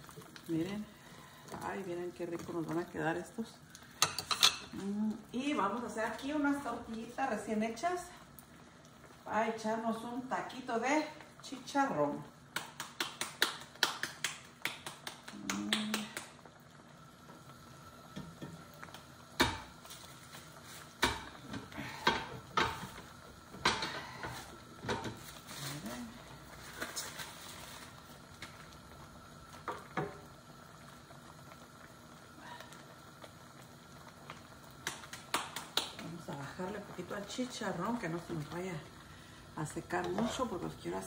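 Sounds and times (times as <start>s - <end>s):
hands slapping dough: 12.5s - 16.3s, 34.8s - 36.1s.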